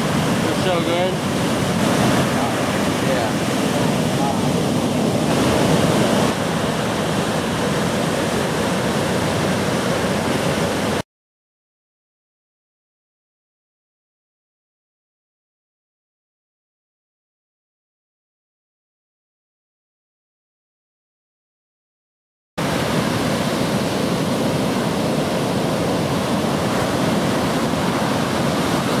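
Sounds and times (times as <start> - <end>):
ocean surf rushing: 0.0 - 11.0, 22.6 - 29.0
waves crashing: 0.0 - 11.0, 22.6 - 29.0.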